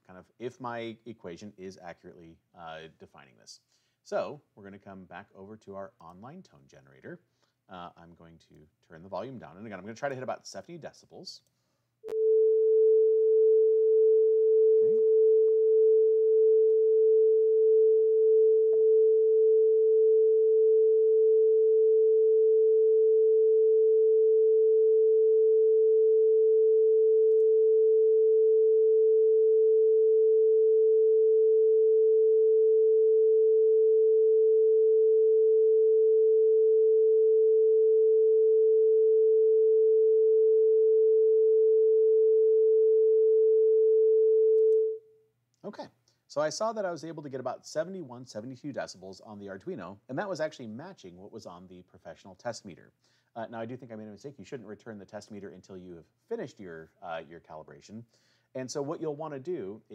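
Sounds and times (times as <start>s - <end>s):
steady sine tone: 12.0s - 45.0s.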